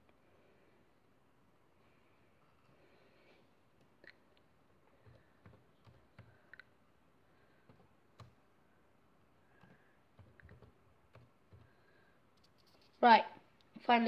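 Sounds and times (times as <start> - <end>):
laptop keys clicking: 4.9 - 6.7, 7.6 - 8.4, 9.5 - 11.8.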